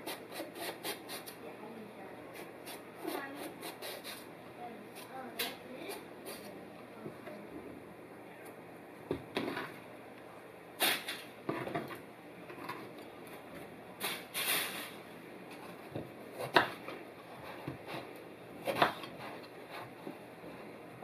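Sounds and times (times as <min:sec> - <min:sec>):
knife scraping and tapping board: 0:15.5 - 0:18.1, 0:18.7 - 0:20.0.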